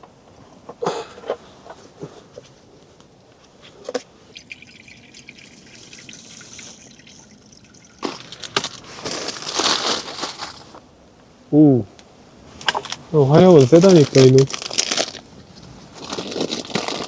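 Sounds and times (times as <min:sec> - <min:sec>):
water trickling into container: 0:04.2 - 0:08.8.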